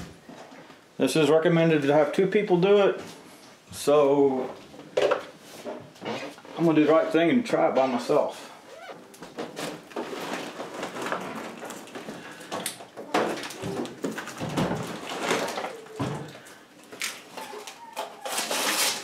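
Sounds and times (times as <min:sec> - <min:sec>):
knocks and bumps: 0:12.5 - 0:16.4
plastic film crinkling: 0:13.3 - 0:19.0.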